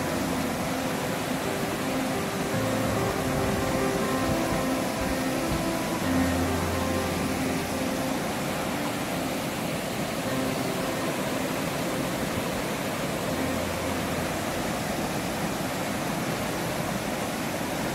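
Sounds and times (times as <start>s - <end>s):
river rapids roaring: 0.0s - 17.9s.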